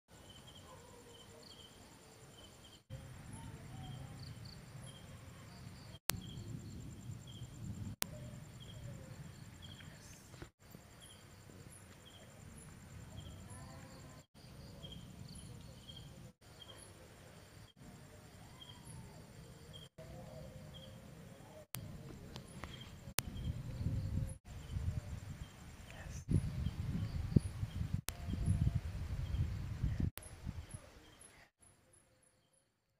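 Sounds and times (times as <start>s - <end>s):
insects chirping: 0.1s - 32.6s.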